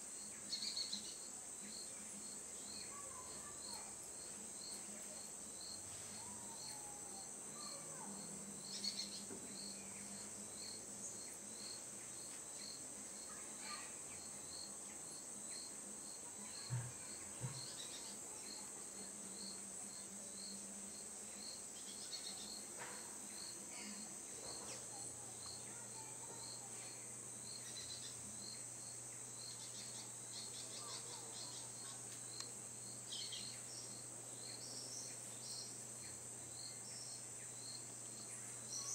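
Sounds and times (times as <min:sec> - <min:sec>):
insect chirping: 0:00.0 - 0:38.9
insects buzzing: 0:00.0 - 0:38.9.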